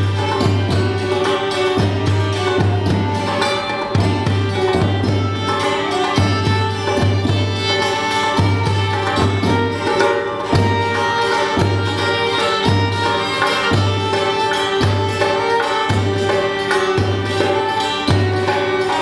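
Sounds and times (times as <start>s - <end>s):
deep hand drum strokes: 0.0s - 7.7s
violin melody: 0.0s - 19.0s.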